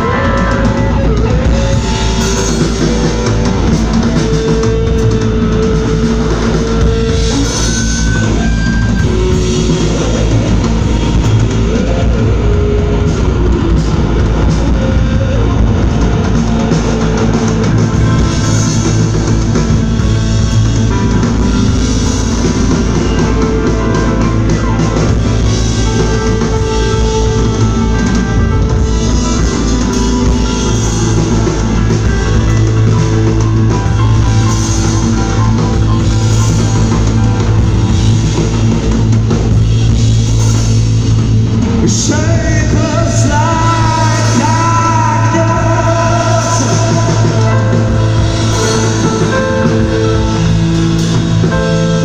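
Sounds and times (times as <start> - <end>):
live rock band playing: 0.0 - 52.0.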